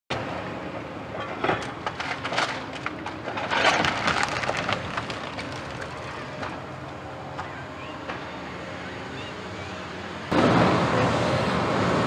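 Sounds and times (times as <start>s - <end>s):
diesel engine running: 0.1s - 12.0s
wooden boards splintering and cracking: 1.9s - 6.1s.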